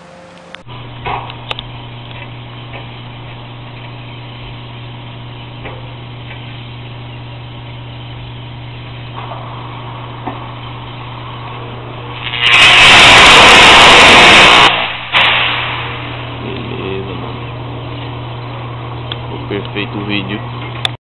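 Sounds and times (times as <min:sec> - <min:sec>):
substation electrical hum: 0:00.0 - 0:21.0
hiss: 0:12.1 - 0:16.4.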